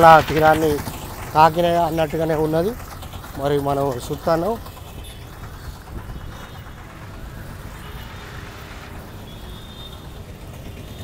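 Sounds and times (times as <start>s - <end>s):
vehicle engines humming: 0.0s - 11.0s
low rumble: 5.4s - 10.9s.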